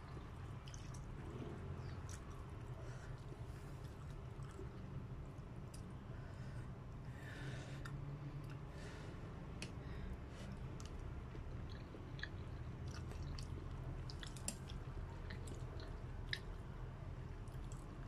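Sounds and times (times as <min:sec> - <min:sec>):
chewing: 0:00.0 - 0:06.0, 0:10.4 - 0:18.0
small wet clicks: 0:10.8 - 0:16.7.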